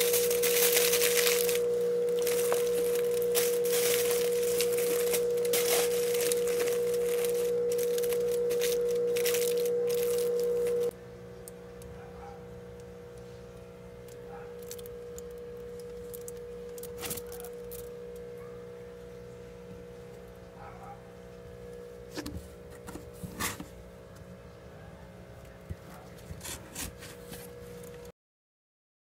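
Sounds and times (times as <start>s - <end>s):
taps and rustles of handling: 0.0s - 10.9s
steady electrical hum: 0.0s - 28.1s.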